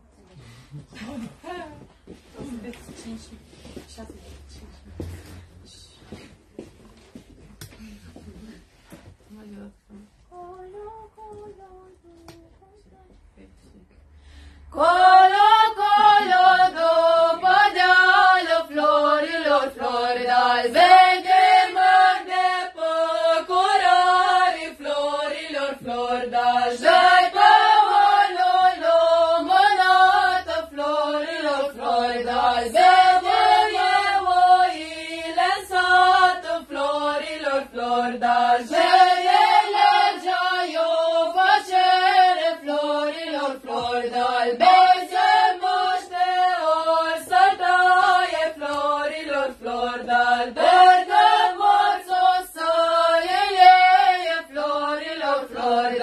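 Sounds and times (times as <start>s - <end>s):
group singing carol in unison: 14.7s - 56.0s.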